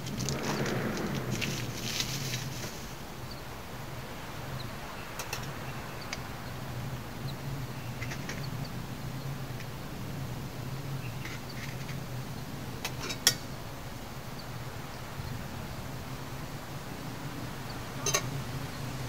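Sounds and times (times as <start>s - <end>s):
low drone: 0.0s - 3.3s.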